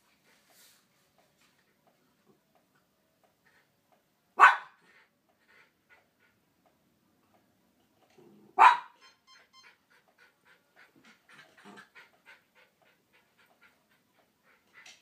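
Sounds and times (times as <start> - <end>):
dog barking: 4.4 - 4.8, 8.6 - 9.0
dog panting: 4.8 - 6.8, 9.3 - 15.0.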